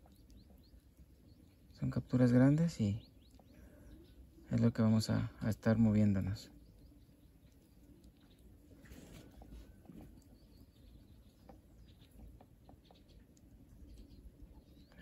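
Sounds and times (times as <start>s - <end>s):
small ticks: 0.0s - 1.8s, 6.5s - 15.0s
distant bird chirps: 0.0s - 15.0s.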